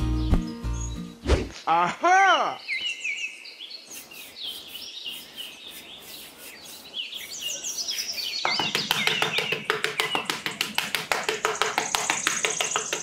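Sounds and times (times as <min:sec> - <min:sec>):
small birds chirping: 0:00.0 - 0:01.4, 0:02.4 - 0:13.0
metal trowel patting sand: 0:03.9 - 0:13.0.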